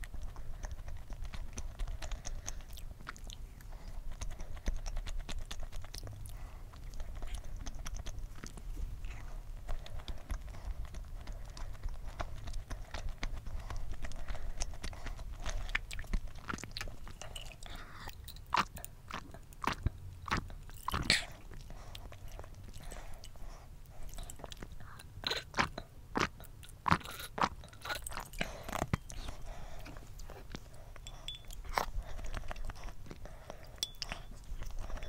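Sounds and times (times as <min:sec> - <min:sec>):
gulps and swallows: 0:00.0 - 0:35.0
wet chewing and mouth clicks: 0:00.0 - 0:35.0.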